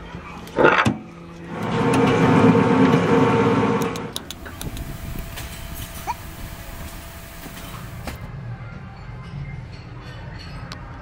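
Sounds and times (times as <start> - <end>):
machine motor humming: 1.4 - 8.3.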